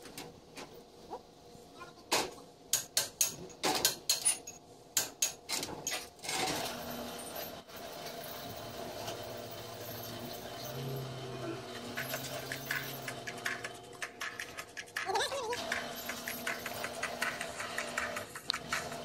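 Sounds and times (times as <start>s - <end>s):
sharp metal knocks and clinks: 11.9s - 13.6s.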